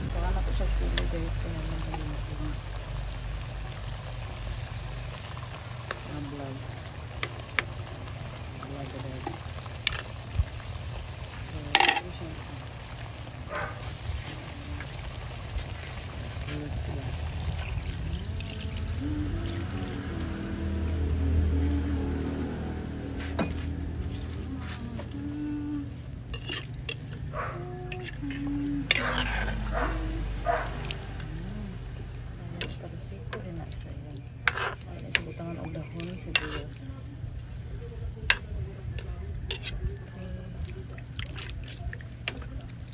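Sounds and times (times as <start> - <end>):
food simmering and sizzling in wok: 0.0 - 42.9
utensil scraping wok: 5.0 - 18.2, 23.1 - 42.5
metal ladle scraping pan: 11.7 - 12.2, 26.3 - 27.2, 27.9 - 30.1, 34.4 - 36.8, 39.4 - 39.8
steady low hum: 12.3 - 42.9.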